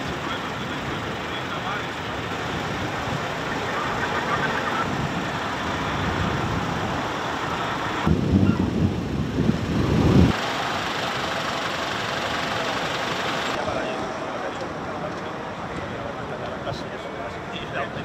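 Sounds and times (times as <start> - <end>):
fire truck engine running: 0.0 - 8.1, 9.0 - 16.2.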